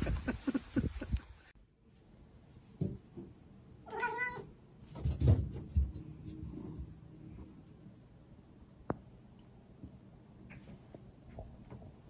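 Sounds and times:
cat meowing: 0:03.8 - 0:04.5.

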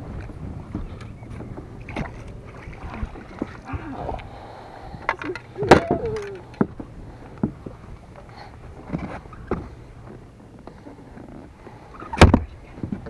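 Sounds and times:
wind and water rumble: 0:00.0 - 0:13.0
short vocal cry: 0:05.3 - 0:06.5.

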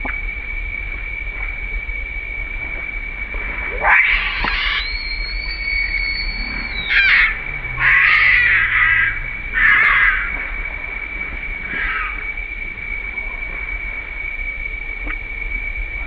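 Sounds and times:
baby monkey screaming: 0:03.8 - 0:10.3.

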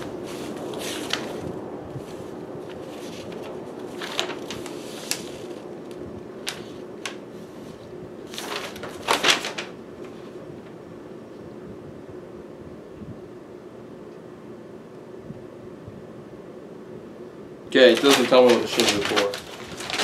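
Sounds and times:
paper rustling: 0:00.0 - 0:10.7, 0:17.8 - 0:20.0
background hum: 0:00.0 - 0:20.0.

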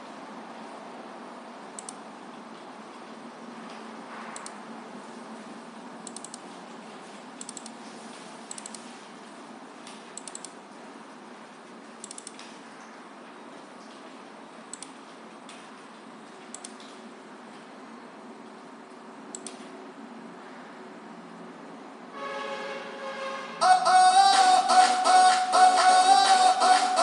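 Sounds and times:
room noise hiss: 0:00.0 - 0:27.0
computer mouse buttons clicking: 0:01.8 - 0:02.0, 0:06.0 - 0:06.4, 0:07.4 - 0:07.8, 0:08.5 - 0:08.9, 0:10.2 - 0:10.6, 0:12.0 - 0:12.5, 0:14.7 - 0:15.0, 0:16.5 - 0:17.0, 0:19.3 - 0:19.7.

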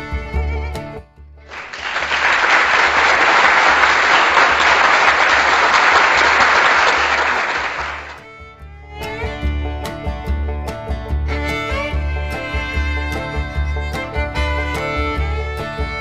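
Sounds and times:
applause: 0:01.5 - 0:08.3.

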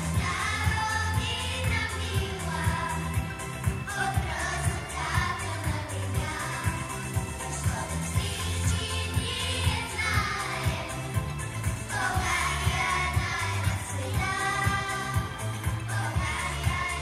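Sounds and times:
children singing together: 0:00.0 - 0:03.3, 0:03.9 - 0:07.0, 0:07.7 - 0:17.0
music with beat and heavy bass: 0:00.0 - 0:17.0.

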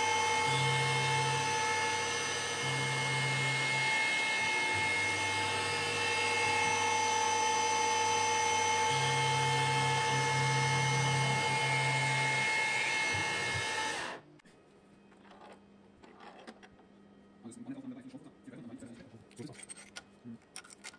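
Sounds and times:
milling machine spindle whine: 0:00.0 - 0:14.2.

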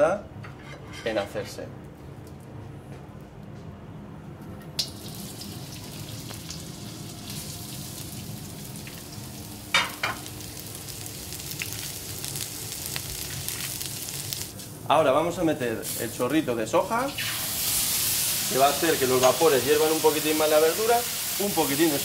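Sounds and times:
vegetables sizzling in a wok: 0:04.9 - 0:14.8, 0:17.1 - 0:22.0.

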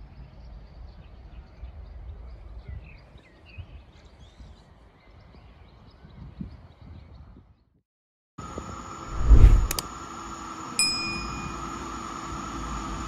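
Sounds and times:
low rumble: 0:09.1 - 0:09.8.

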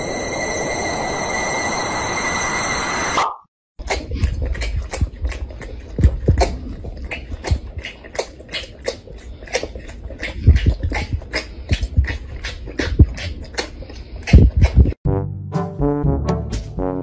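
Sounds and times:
tiger sucking from a bottle: 0:03.8 - 0:15.0.

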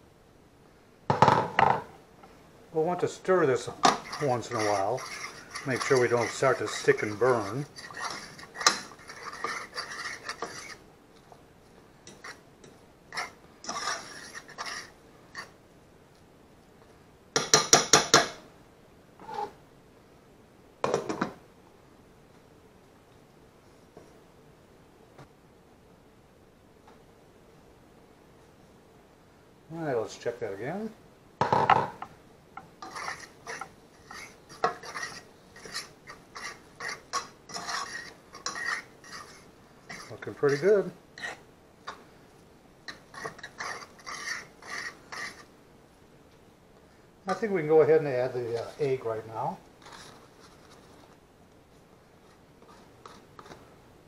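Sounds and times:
spoon scraping frying pan: 0:03.2 - 0:10.8, 0:12.0 - 0:15.6, 0:32.6 - 0:42.0, 0:42.9 - 0:45.5.

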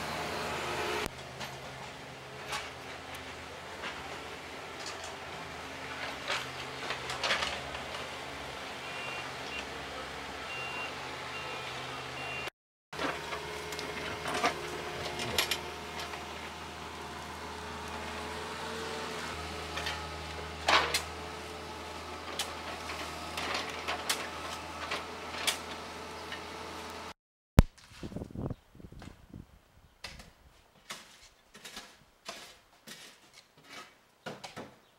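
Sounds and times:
excavator diesel engine running: 0:00.0 - 0:27.1
bucket clanking and scraping soil: 0:01.1 - 0:08.4, 0:13.0 - 0:26.5, 0:30.8 - 0:34.8.

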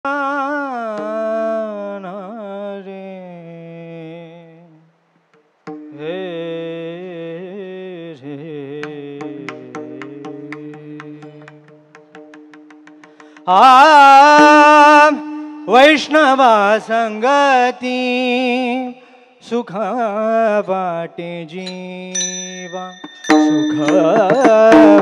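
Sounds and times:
hand cymbals clicking: 0:21.6 - 0:25.0.

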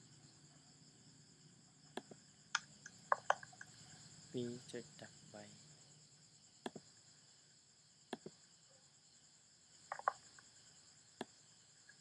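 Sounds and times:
crickets chirring: 0:00.0 - 0:12.0
computer mouse clicks: 0:01.9 - 0:03.8, 0:09.9 - 0:10.4.

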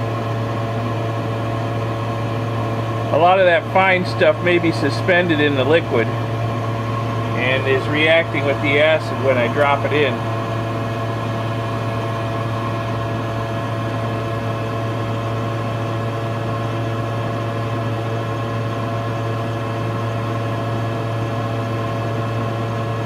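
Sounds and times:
exhaust fan humming: 0:00.0 - 0:23.0.

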